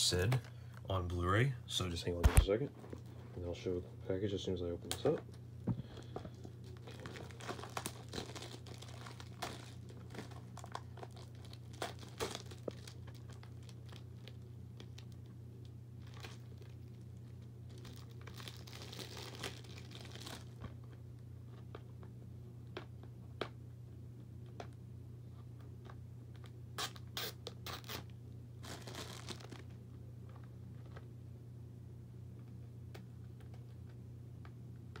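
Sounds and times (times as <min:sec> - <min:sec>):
packaging crinkling and tearing: 0:05.9 - 0:15.4, 0:16.0 - 0:21.0, 0:26.4 - 0:31.0.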